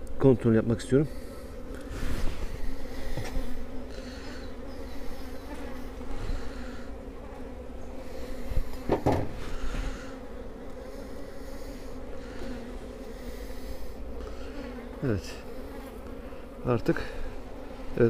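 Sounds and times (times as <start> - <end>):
honeybees buzzing: 0.0 - 18.0
hive frames knocking and scraping: 1.6 - 6.6, 7.2 - 11.2.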